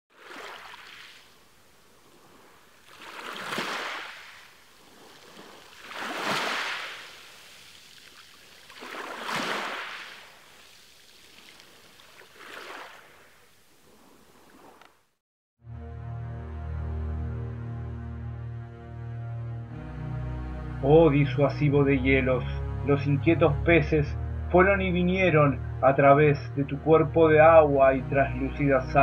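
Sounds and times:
sea waves washing in: 0.1 - 14.9.

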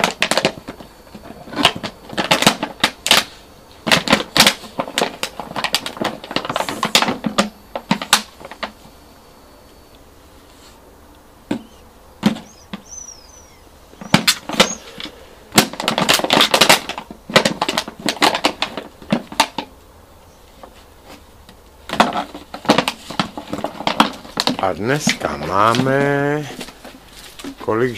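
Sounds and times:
puppy chewing plastic bottle: 0.0 - 8.8, 14.0 - 19.7, 21.9 - 27.6.

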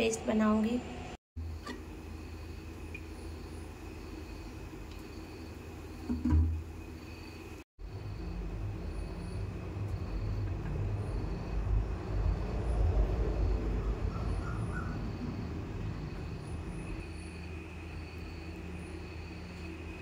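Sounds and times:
faint high whine: 0.7 - 20.0
steady low rumble: 7.8 - 20.0.

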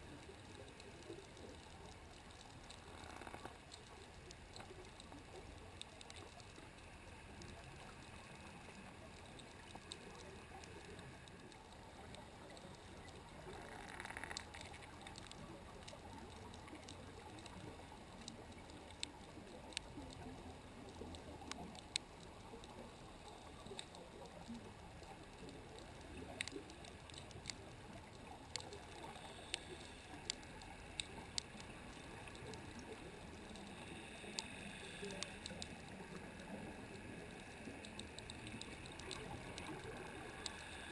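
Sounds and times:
sharp underwater clicks: 0.0 - 40.9
underwater hiss: 31.5 - 40.9.

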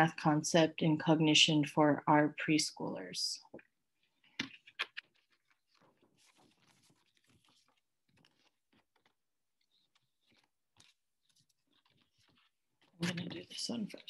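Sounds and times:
paper sheets rustling: 4.0 - 14.0.

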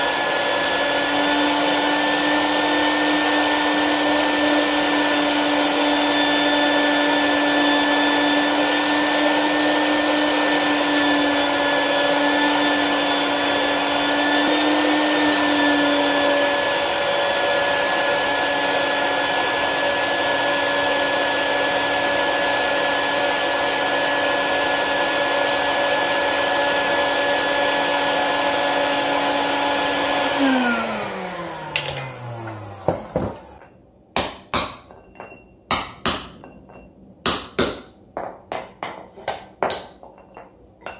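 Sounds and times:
vacuum motor spinning down: 0.0 - 33.6
shop vacuum running with a whine: 0.0 - 33.7.

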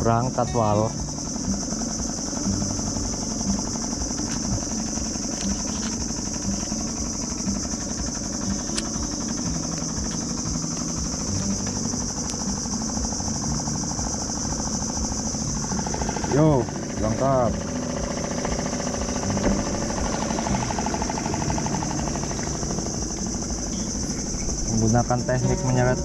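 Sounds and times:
boat engine idling: 0.0 - 26.0
high-pitched drone: 0.0 - 26.0.

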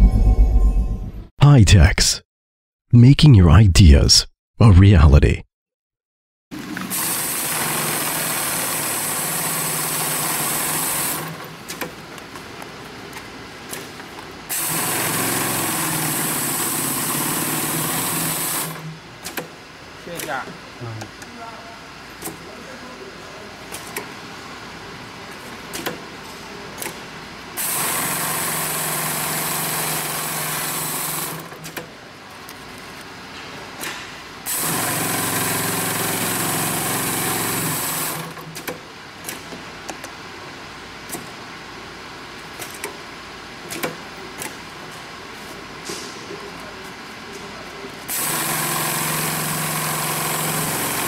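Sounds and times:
sewing machine running: 27.6 - 31.5, 34.5 - 38.3, 48.1 - 51.0.

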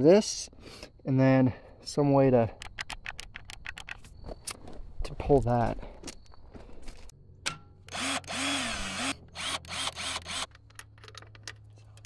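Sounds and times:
cordless drill motor whirring: 7.9 - 10.5.

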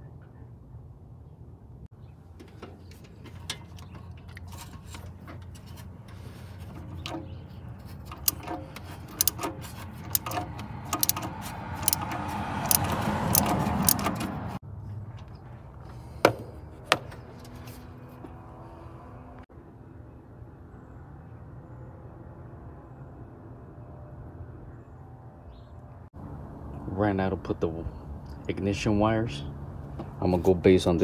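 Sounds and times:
ratchet wrench clicking: 8.1 - 14.3.

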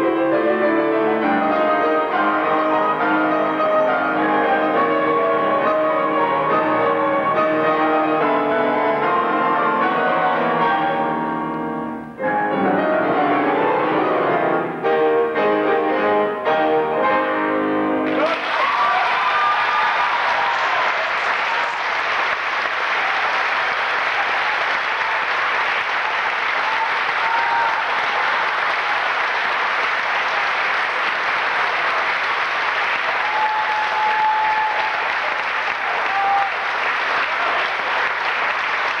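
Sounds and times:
audience applauding: 18.0 - 39.0.

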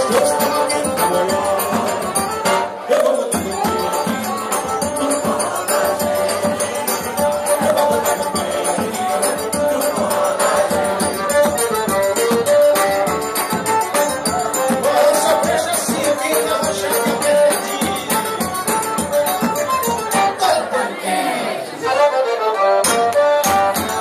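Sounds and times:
triangle rhythm: 0.0 - 20.5
drum beats: 0.0 - 20.7, 22.8 - 24.0
accordion melody: 0.0 - 24.0.

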